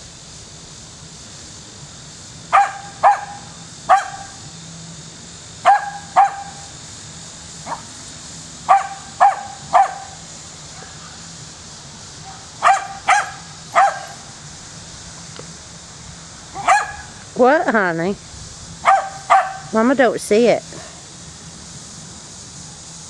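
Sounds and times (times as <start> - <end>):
dog barking: 2.5 - 4.4, 5.6 - 6.7, 7.7 - 7.9, 8.7 - 10.2, 12.3 - 14.2, 16.6 - 17.1, 18.8 - 19.7.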